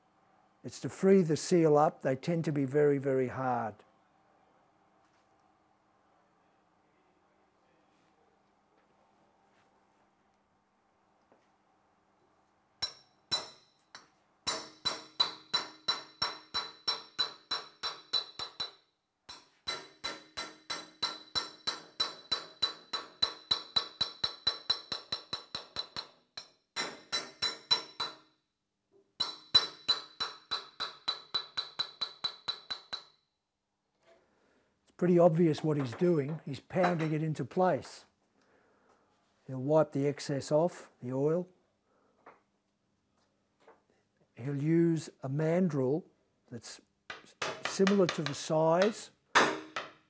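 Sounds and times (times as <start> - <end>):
mallet striking steel tube: 14.5 - 28.3, 29.2 - 33.1, 47.1 - 50.0.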